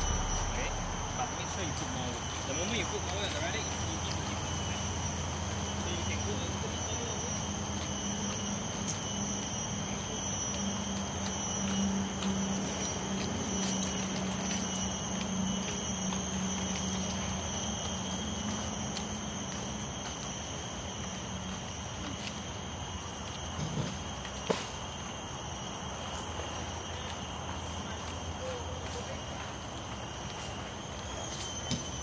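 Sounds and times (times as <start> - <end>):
low hum: 0.0 - 3.0
high-pitched insect drone: 0.0 - 32.0.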